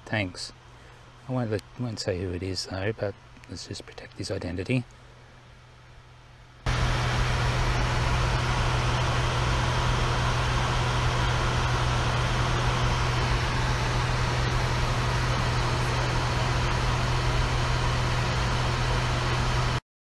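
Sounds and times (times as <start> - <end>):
constant low hum: 0.0 - 19.8
steady rushing noise: 6.7 - 19.8.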